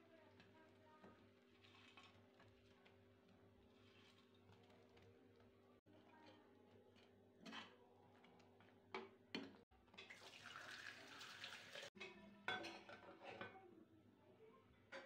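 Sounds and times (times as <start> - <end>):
food fizzing in a pan: 10.0 - 12.0.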